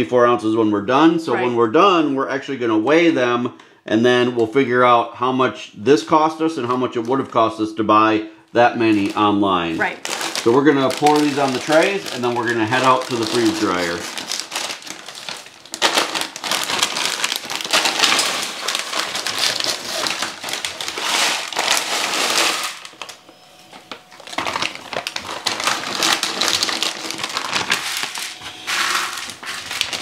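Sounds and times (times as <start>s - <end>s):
plastic bags crinkling: 8.7s - 30.0s
frozen vegetables clattering on metal: 8.8s - 23.2s, 24.2s - 30.0s.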